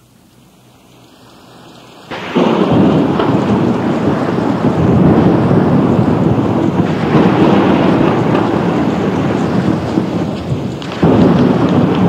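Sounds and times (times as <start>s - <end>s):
faint hiss: 0.0s - 12.0s
rain: 0.0s - 12.0s
loud crack of thunder: 2.1s - 12.0s.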